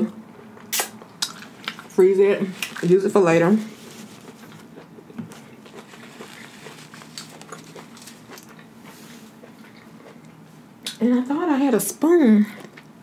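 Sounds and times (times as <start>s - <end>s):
faint steady hum: 0.0s - 13.0s
hands handling napkin and crab: 6.0s - 8.5s.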